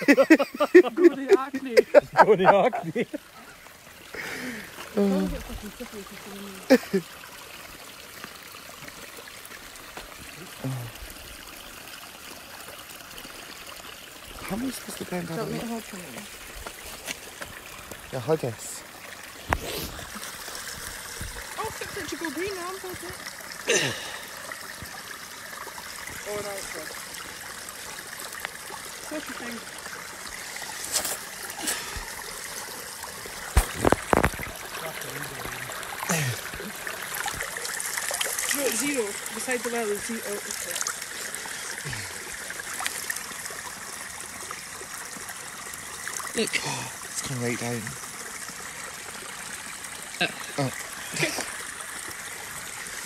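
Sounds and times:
water trickling: 0.0 - 53.0.

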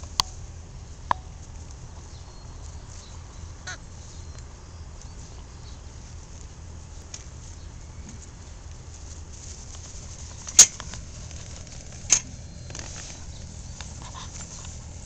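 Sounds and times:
steady low rumble: 0.0 - 15.0
sharp animal cries: 3.6 - 4.0.

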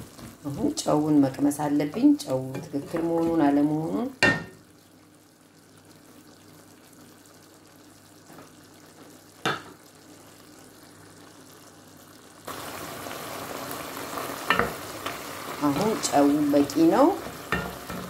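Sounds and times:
food sizzling in a pot: 0.0 - 18.0.

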